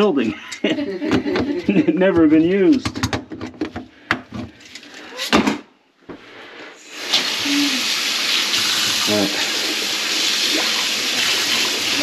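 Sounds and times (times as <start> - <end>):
knocks and clatters: 1.1 - 4.6
water running: 6.8 - 12.0.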